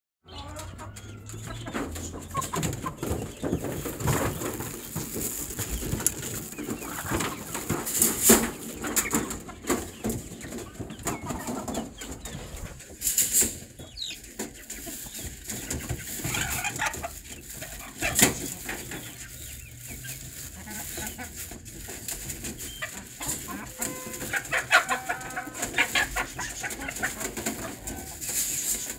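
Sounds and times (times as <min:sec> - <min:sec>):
soft chicken cluck: 0:00.2 - 0:12.9, 0:13.5 - 0:28.9
chickens rustling and scratching: 0:00.3 - 0:28.9
sharp knocks on cages: 0:00.8 - 0:12.2.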